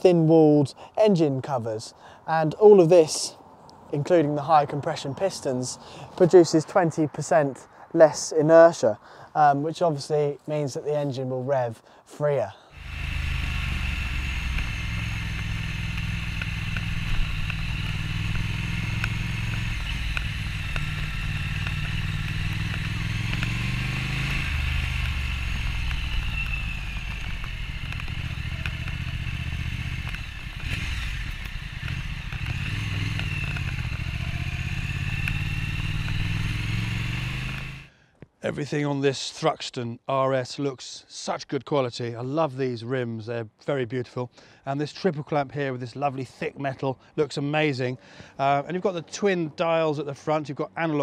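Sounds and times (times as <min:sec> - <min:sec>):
motorcycle engine and exhaust: 0:12.8 - 0:37.9.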